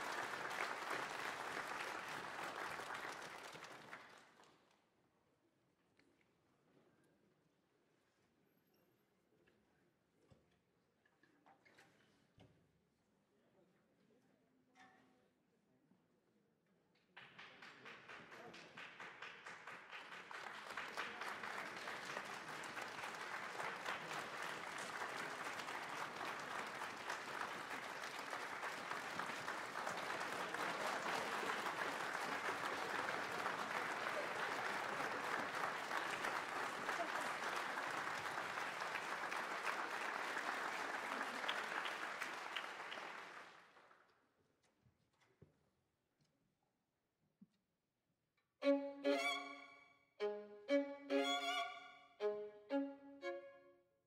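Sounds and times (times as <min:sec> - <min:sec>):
audience applauding: 0:00.0 - 0:04.6, 0:17.2 - 0:43.9.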